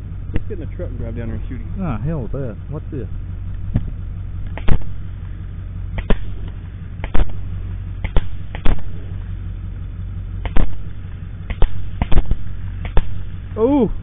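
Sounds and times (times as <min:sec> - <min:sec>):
low steady rumble: 0:00.0 - 0:14.0
rifle shots: 0:04.5 - 0:05.2, 0:05.9 - 0:09.4, 0:10.4 - 0:13.5.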